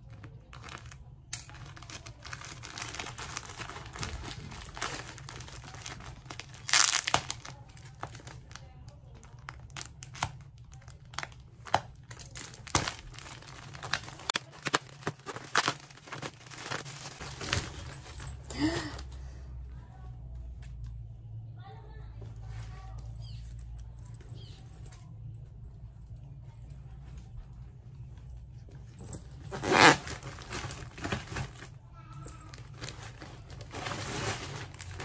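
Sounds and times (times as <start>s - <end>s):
plastic bag crinkling and tearing: 0.0s - 18.9s, 29.5s - 31.8s, 32.4s - 35.0s.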